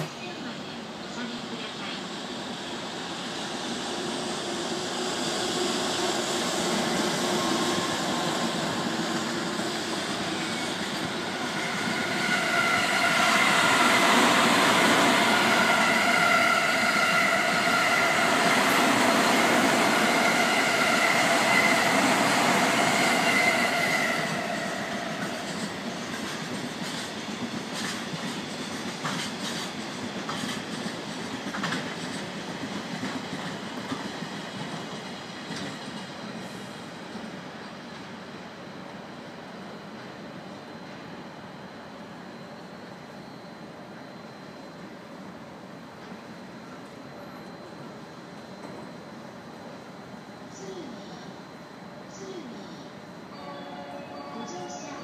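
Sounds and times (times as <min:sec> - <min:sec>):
freight train rumbling past: 0:00.0 - 0:55.0
steady high tones: 0:53.3 - 0:55.0.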